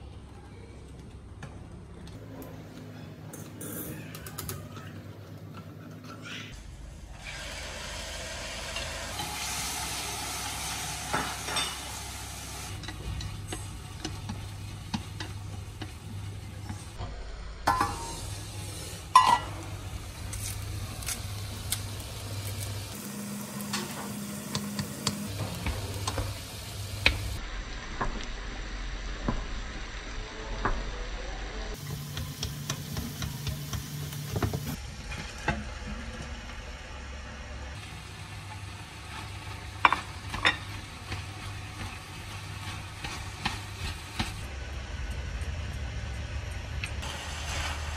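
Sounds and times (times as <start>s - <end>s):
food sizzling in a pan: 7.1s - 17.0s, 17.7s - 30.8s, 31.7s - 34.8s, 37.8s - 44.5s, 47.0s - 47.9s
utensil tapping and scraping pan: 39.1s - 44.4s.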